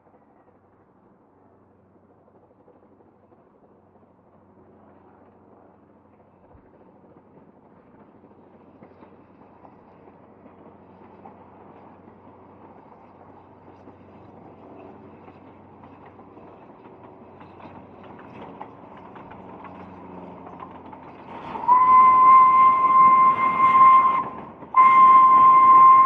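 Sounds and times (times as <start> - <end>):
steam train rumbling: 8.4 - 26.0
rail clicks: 13.8 - 26.0
steam whistle: 21.5 - 26.0.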